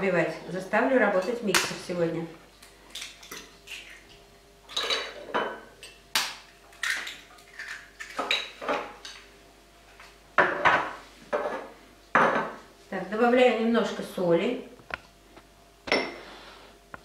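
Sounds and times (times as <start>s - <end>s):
eggs cracking on metal bowl: 2.6s - 9.3s.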